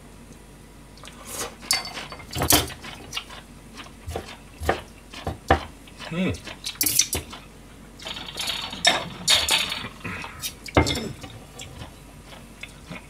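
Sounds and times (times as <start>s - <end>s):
utensils and dishes clinking: 1.6s - 3.0s, 8.0s - 10.0s.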